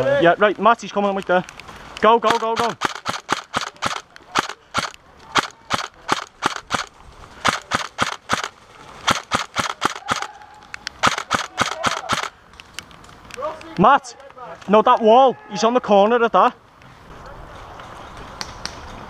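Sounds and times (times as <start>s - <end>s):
airsoft rifle shots: 2.2s - 10.4s, 11.0s - 12.4s.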